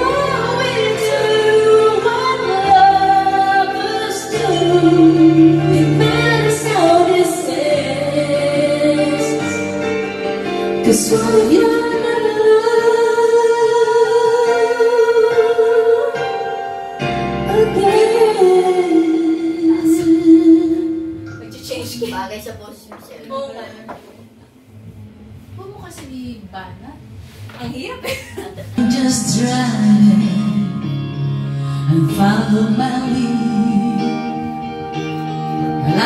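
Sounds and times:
woman singing karaoke: 0.0 - 24.2, 27.5 - 36.0
backing track music: 0.0 - 36.0.

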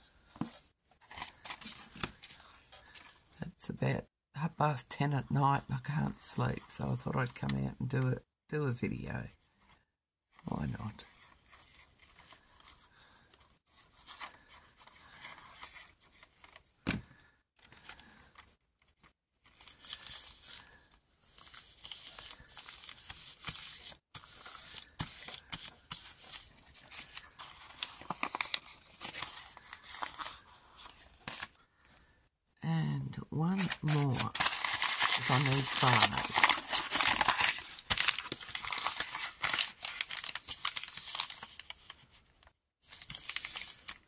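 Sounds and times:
paper rustling and crinkling: 0.2 - 3.2, 11.0 - 31.6, 33.5 - 44.0.

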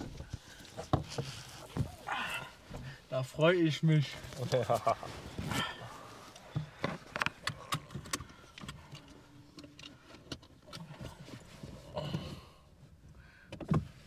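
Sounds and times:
rustling: 0.0 - 9.3.

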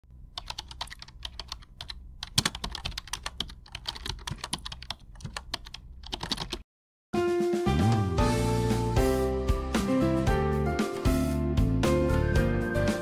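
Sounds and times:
keyboard typing: 0.3 - 6.6.

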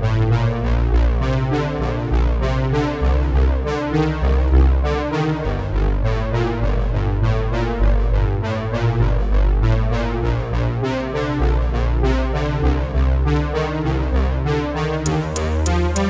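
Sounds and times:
synthesizer melody over a beat: 0.0 - 16.0.

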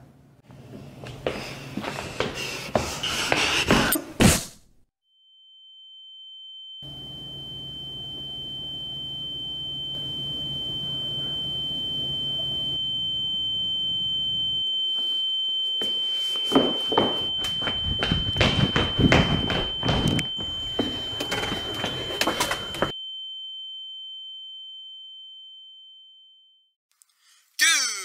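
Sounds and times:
high-pitched ringing tone: 5.1 - 26.8
knocks and thuds: 17.5 - 20.8.

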